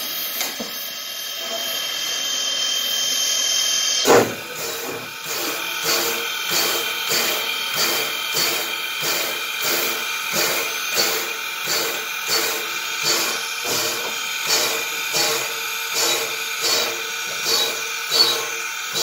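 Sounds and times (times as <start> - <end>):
steam hissing: 0.0 - 19.0
steam locomotive chuffing: 0.0 - 19.0.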